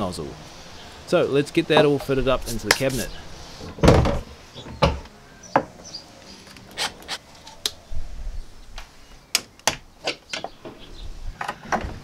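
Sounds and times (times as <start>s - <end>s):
soft rubbing: 2.0s - 3.6s.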